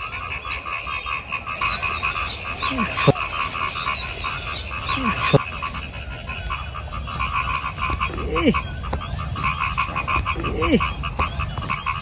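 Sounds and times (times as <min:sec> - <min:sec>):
frogs calling in rapid pulses: 0:00.0 - 0:12.0
short falling frog calls: 0:00.0 - 0:12.0.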